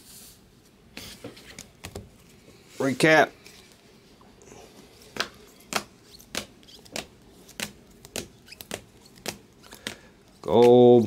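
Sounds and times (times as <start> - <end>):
plastic-sleeved cards clicking: 5.2 - 10.9.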